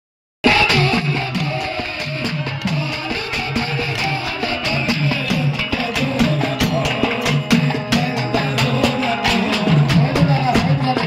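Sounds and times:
plucked string melody with beat: 0:00.4 - 0:11.0.

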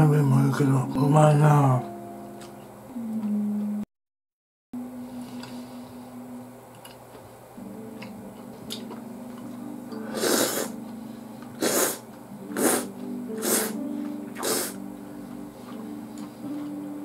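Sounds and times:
background music: 0:00.0 - 0:03.8, 0:07.6 - 0:17.0
loud noodle slurps: 0:10.1 - 0:10.8, 0:11.6 - 0:12.0, 0:12.6 - 0:13.8, 0:14.4 - 0:14.8.

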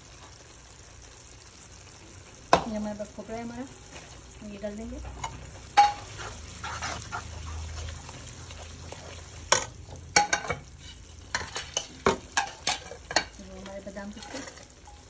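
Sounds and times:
light sizzle: 0:00.0 - 0:15.0
spoon stirring in a pan: 0:05.0 - 0:15.0
spoon clacking against pan: 0:05.2 - 0:13.4.

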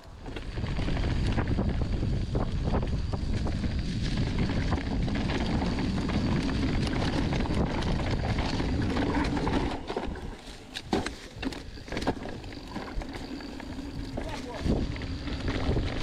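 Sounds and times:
wind rushing over microphone: 0:00.1 - 0:10.6, 0:11.6 - 0:16.0
bike clicks and knocks: 0:00.1 - 0:16.0.

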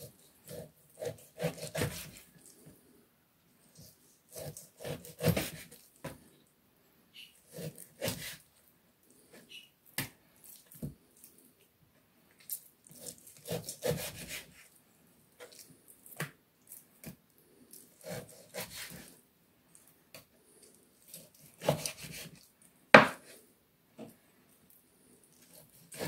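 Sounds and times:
knife cutting ribs: 0:00.4 - 0:02.3, 0:03.8 - 0:05.8, 0:07.5 - 0:08.4, 0:12.5 - 0:14.6, 0:17.7 - 0:19.1, 0:21.1 - 0:22.4, 0:25.4 - 0:26.0.

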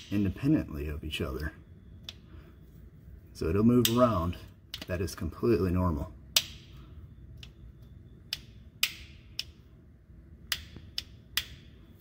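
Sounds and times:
metallic clicks of bearing: 0:03.7 - 0:05.1.

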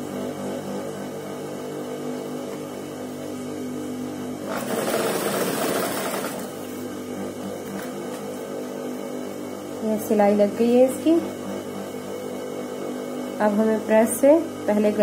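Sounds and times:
sewing machine motor hum: 0:00.0 - 0:15.0
fast machine stitching: 0:04.4 - 0:06.7.

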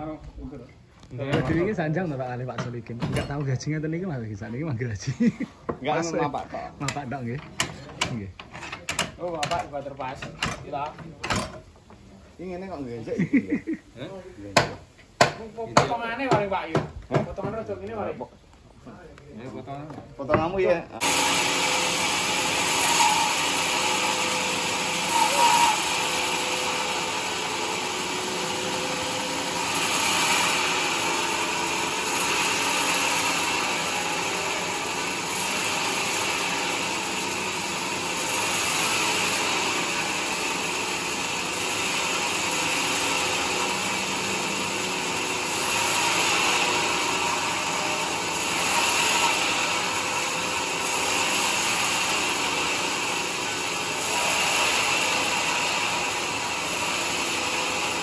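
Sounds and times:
band saw cutting log: 0:20.4 - 0:58.0.

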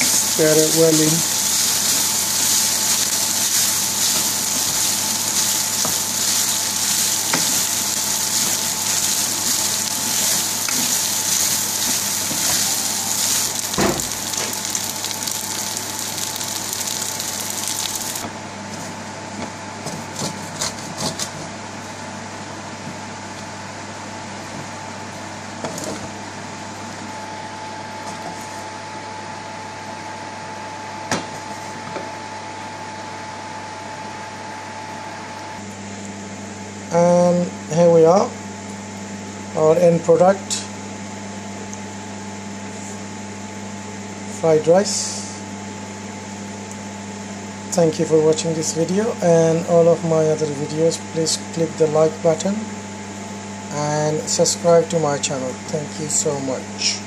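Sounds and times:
food sizzling in hot oil: 0:00.0 - 0:18.2
steady hum: 0:00.0 - 0:57.0.

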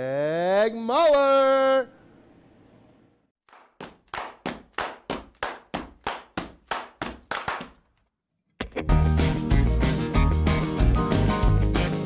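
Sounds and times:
rhythmic clapping: 0:03.5 - 0:07.9.

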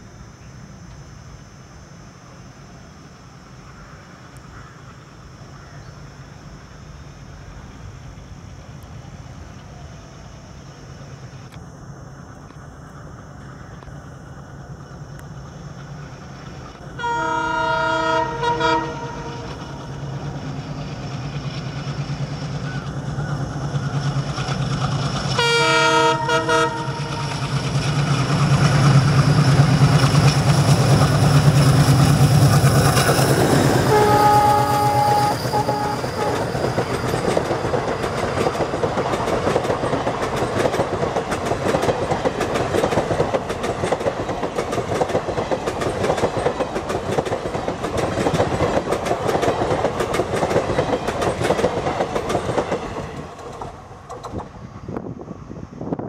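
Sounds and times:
diesel locomotive engine rumble: 0:00.0 - 0:56.0
train horn blasts: 0:17.0 - 0:19.6, 0:25.3 - 0:27.4, 0:33.7 - 0:36.6
wheels clicking over rail joints: 0:18.2 - 0:54.6.

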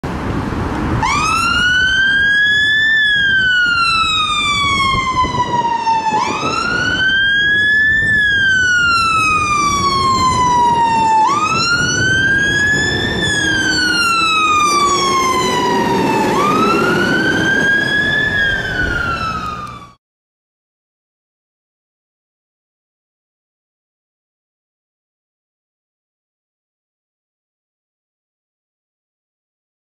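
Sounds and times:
fire engine siren wailing: 0:00.1 - 0:20.0.

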